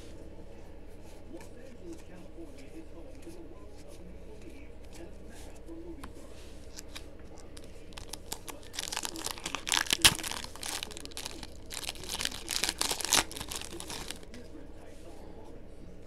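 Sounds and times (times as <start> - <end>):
foil snapping: 6.8 - 14.4
foil wrapper crinkling: 6.8 - 14.4.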